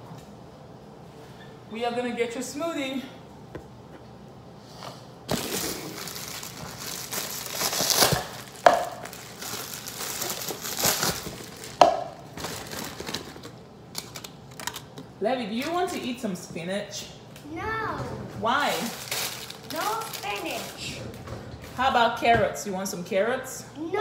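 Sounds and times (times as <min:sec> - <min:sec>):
plastic cups crinkling: 0:05.3 - 0:16.0, 0:18.6 - 0:21.0.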